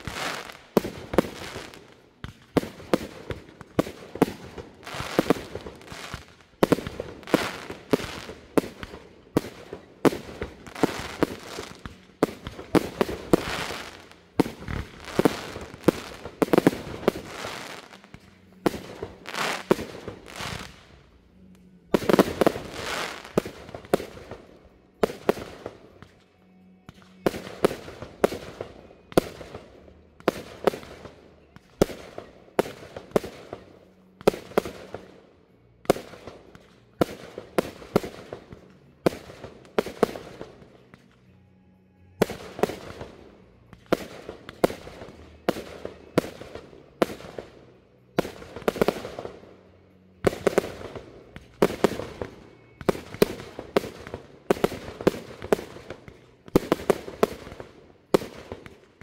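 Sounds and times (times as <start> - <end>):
firework bangs: 0.0 - 21.0.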